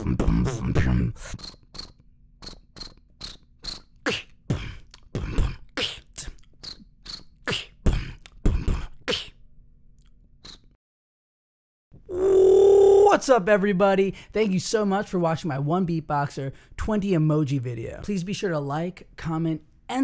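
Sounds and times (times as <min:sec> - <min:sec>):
beatboxed kick-drum hits: 0:00.0 - 0:09.3
beatboxing: 0:00.0 - 0:09.4
mouth clicks: 0:00.0 - 0:09.4, 0:10.0 - 0:10.8
high chirps imitating cricket: 0:01.4 - 0:03.9.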